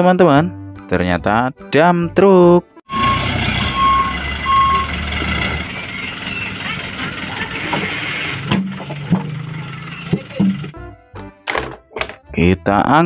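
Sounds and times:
reversing beeper: 0:02.9 - 0:08.4
truck engine running: 0:02.9 - 0:10.8.

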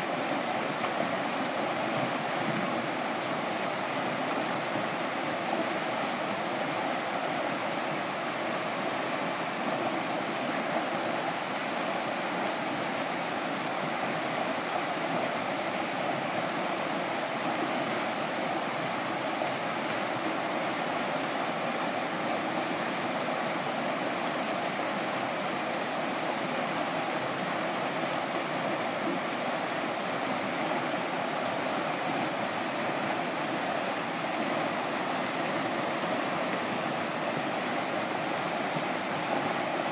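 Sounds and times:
whitewater rapids rushing: 0:00.0 - 0:39.9.

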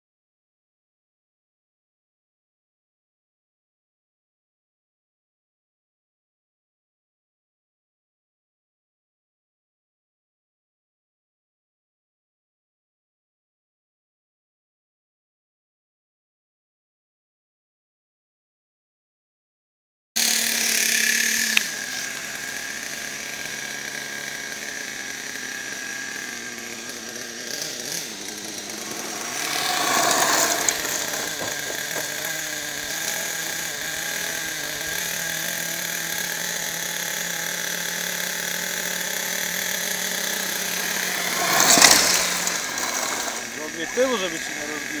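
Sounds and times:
rc truck motor whining: 0:20.2 - 0:45.0.

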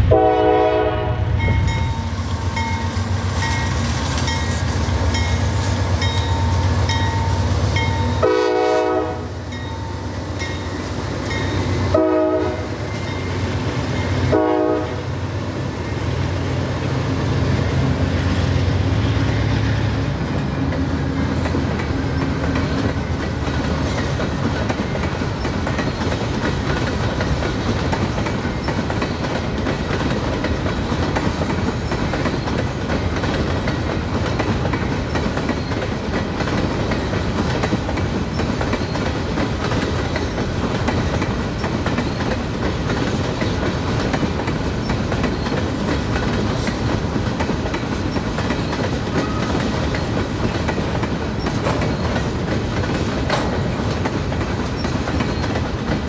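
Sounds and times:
train cars rolling past: 0:00.0 - 0:56.0
locomotive air horn blasts: 0:00.1 - 0:01.4, 0:08.2 - 0:09.4, 0:11.9 - 0:12.8, 0:14.2 - 0:15.1
wheels clacking on rail joints: 0:01.4 - 0:14.8, 0:15.9 - 0:56.0.

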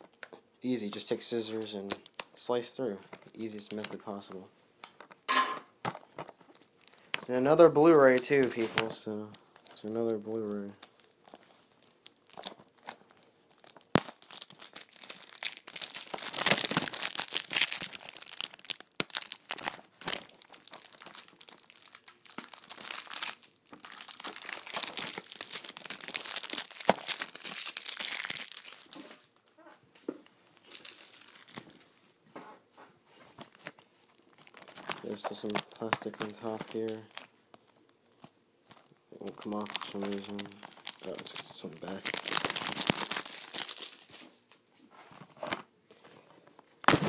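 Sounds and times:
plastic wrap crinkling: 0:03.1 - 0:05.2, 0:05.8 - 0:29.8, 0:30.4 - 0:32.3, 0:33.1 - 0:47.0.

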